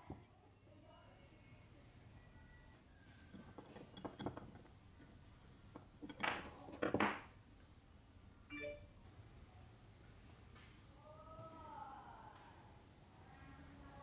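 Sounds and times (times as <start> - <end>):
metal clatters: 3.2 - 7.4
metal parts clinking and scraping: 3.2 - 7.4.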